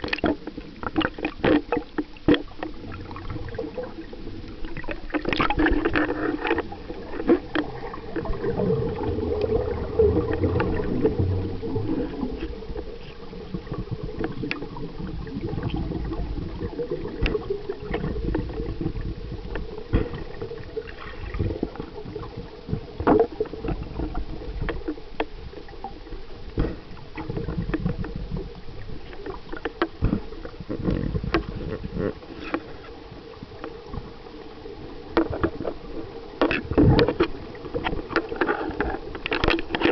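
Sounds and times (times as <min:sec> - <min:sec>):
low rumbling water movement: 0:00.0 - 0:39.9
gurgling air bubbles: 0:02.7 - 0:06.0, 0:06.6 - 0:24.7
sharp clicks and crackles: 0:04.6 - 0:09.6, 0:11.8 - 0:16.0, 0:36.4 - 0:39.9.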